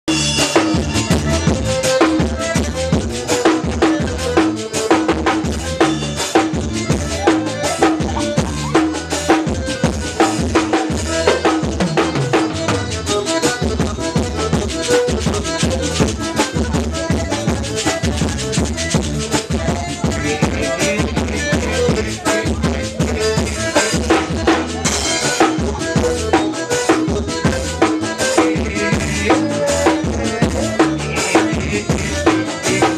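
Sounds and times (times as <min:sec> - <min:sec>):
band playing: 0:00.1 - 0:32.9
drum kit beat: 0:00.1 - 0:32.9.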